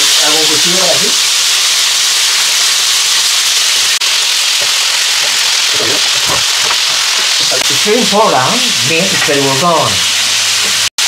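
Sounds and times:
meat sizzling in hot oil: 0.0s - 11.0s
metal spatula turning food: 4.0s - 7.8s.

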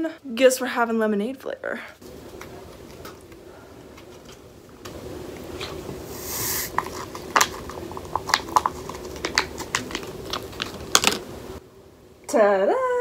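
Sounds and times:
powder rustling from packet: 5.6s - 11.2s.

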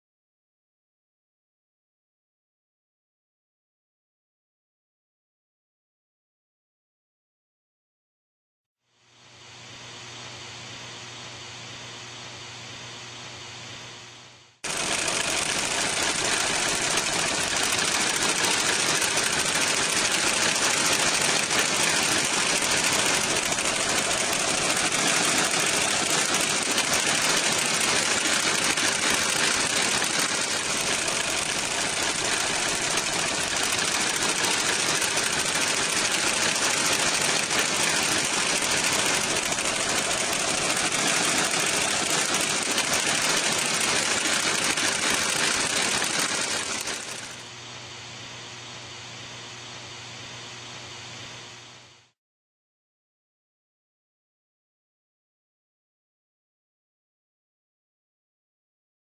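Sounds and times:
radiator cooling fan running: 14.7s - 41.9s
car engine idling: 14.8s - 44.8s.

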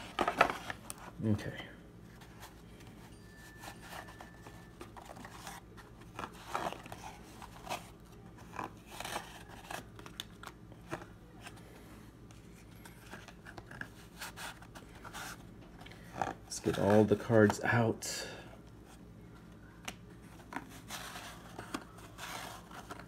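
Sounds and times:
trading cards rustling and tapping: 0.0s - 1.1s, 19.5s - 23.0s.

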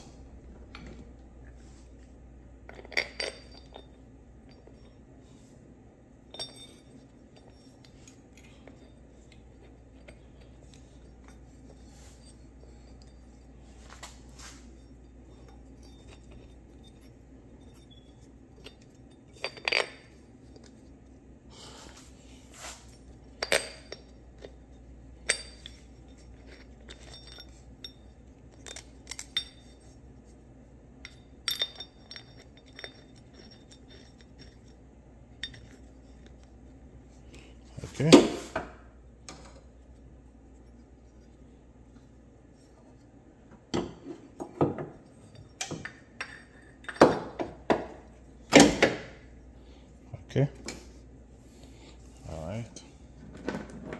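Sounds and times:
faint low hum: 0.0s - 53.9s.

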